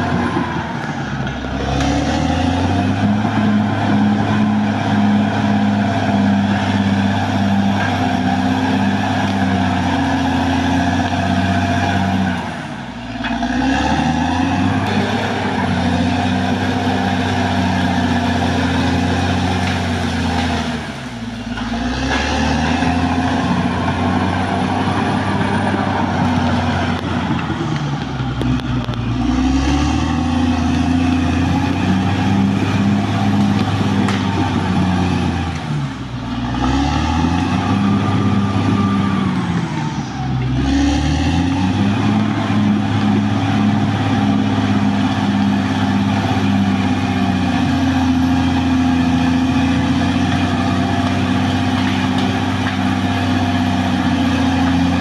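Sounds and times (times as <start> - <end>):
bulldozer diesel engine running hard: 0.0 - 55.0.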